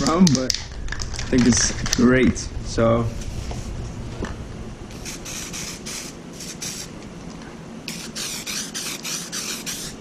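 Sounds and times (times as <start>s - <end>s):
aerosol can spraying: 4.9s - 6.9s, 7.9s - 10.0s.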